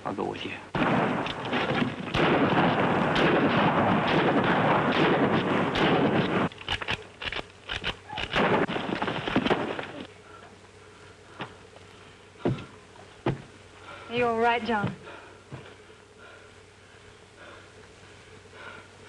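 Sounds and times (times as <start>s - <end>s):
revolver gunfire: 0.7s - 7.0s, 7.8s - 9.8s.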